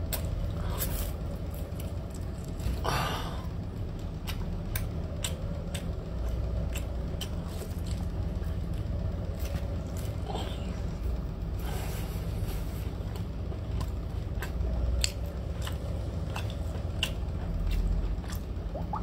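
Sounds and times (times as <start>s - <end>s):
steady low hum: 0.0s - 19.0s
wet chewing clicks: 4.2s - 8.6s, 13.7s - 19.0s.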